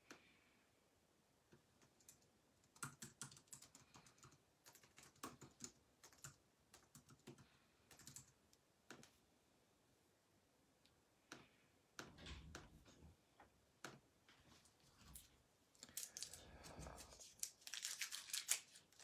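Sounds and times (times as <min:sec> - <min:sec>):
typing on computer keyboard: 0:01.8 - 0:09.1.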